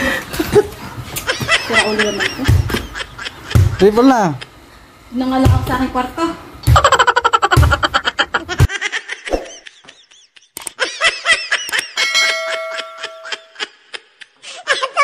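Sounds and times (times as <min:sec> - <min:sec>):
laughter: 0:00.3 - 0:04.5, 0:06.6 - 0:15.0
bell ding: 0:12.0 - 0:13.6.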